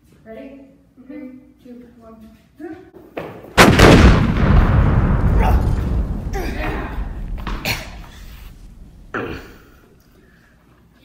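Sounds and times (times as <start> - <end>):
explosion with deep rumble: 3.6 - 9.2
short thuds: 4.2 - 9.1.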